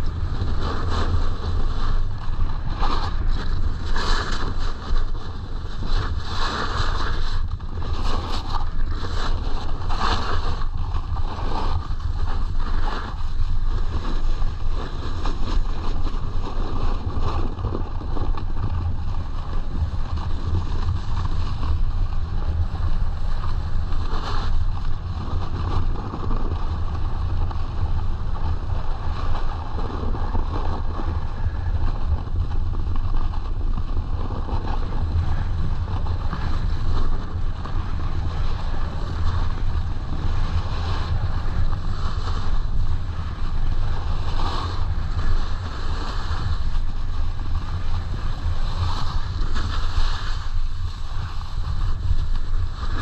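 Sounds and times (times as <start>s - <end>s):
snowboard scraping over snow: 0.0s - 53.0s
wind buffeting microphone: 0.0s - 53.0s.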